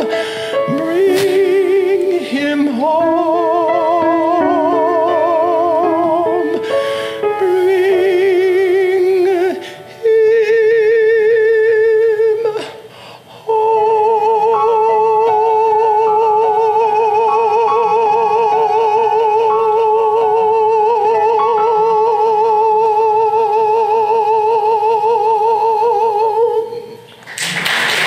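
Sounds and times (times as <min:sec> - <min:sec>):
audience applause: 0:27.2 - 0:28.0.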